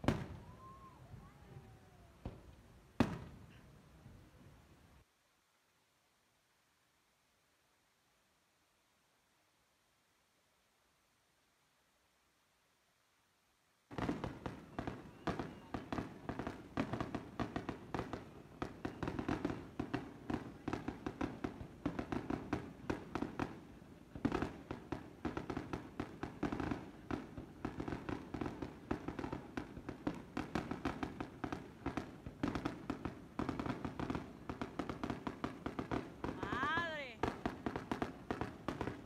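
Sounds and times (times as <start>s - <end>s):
fireworks bangs and crackles: 0.0s - 3.6s, 13.9s - 39.0s.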